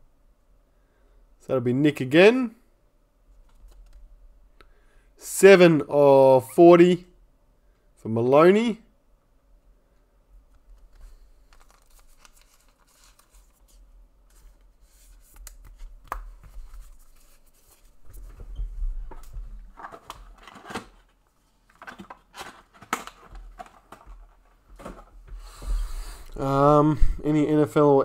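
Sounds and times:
wrappers crinkling: 0:11.4 - 0:13.6
packaging being torn: 0:11.5 - 0:13.5.

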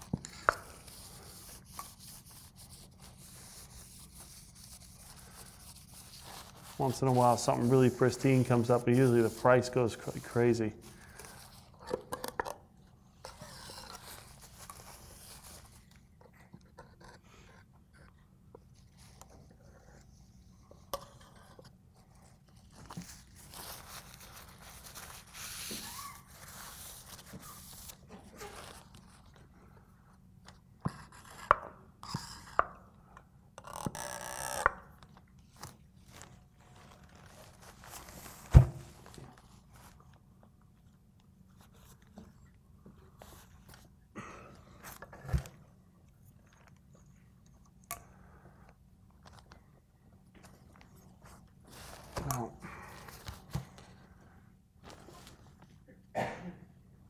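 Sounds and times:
paper towels rustling and rubbing: 0:00.0 - 0:11.6, 0:22.1 - 0:29.4, 0:35.5 - 0:40.2, 0:50.6 - 0:54.2.

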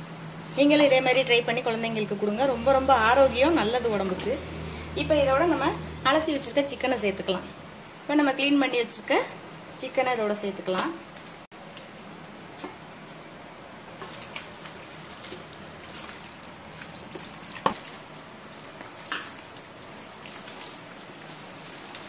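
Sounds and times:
hands squishing wet marinade: 0:13.9 - 0:22.0.

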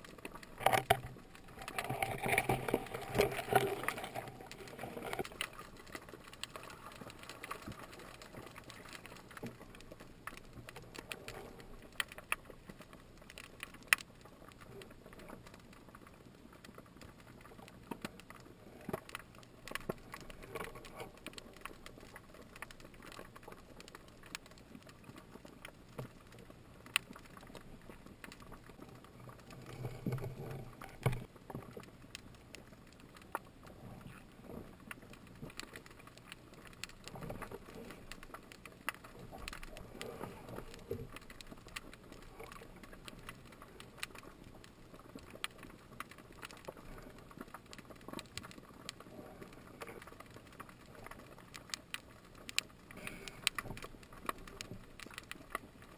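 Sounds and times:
sharp clicks and crackles: 0:00.0 - 0:55.9.

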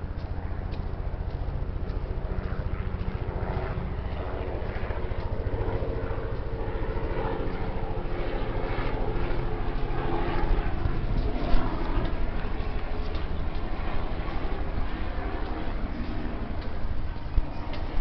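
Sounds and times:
engine droning: 0:00.0 - 0:18.0.

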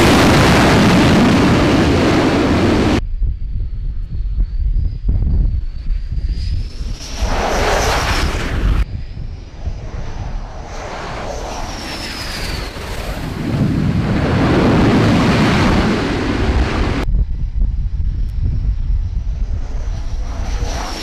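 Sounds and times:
jet engine high whine: 0:00.0 - 0:21.0
jet engine roar: 0:00.0 - 0:21.0.

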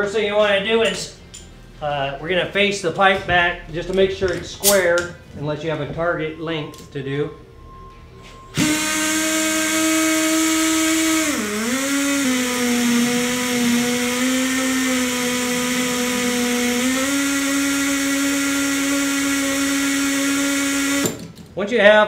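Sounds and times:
pipe beveling machine motor whine: 0:05.4 - 0:21.2.

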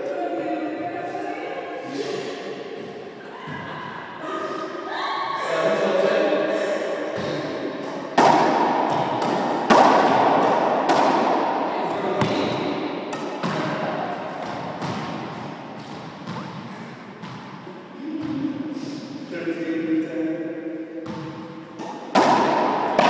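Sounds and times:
racquetball smacks with echo: 0:07.1 - 0:17.6, 0:21.0 - 0:23.0.

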